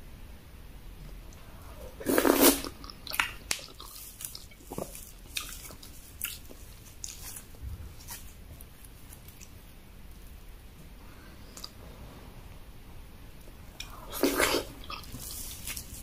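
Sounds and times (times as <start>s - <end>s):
person chewing food: 1.4s - 9.6s, 13.7s - 16.0s.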